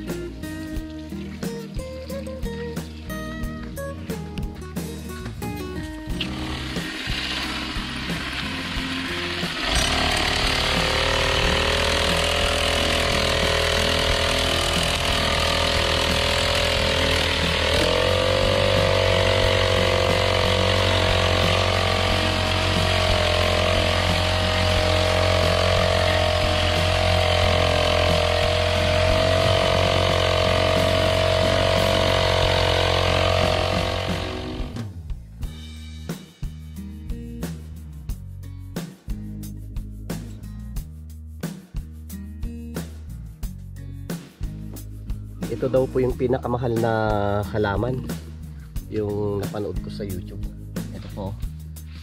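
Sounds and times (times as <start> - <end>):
brush cutter engine running: 6.1 - 34.9.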